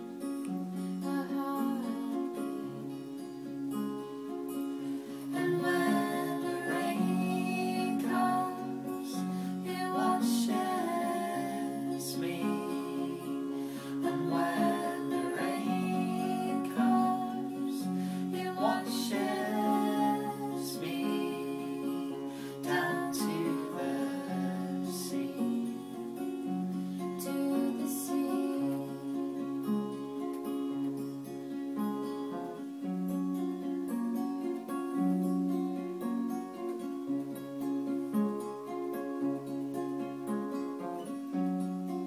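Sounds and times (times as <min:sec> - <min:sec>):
acoustic guitars playing folk song: 0:00.0 - 0:42.0.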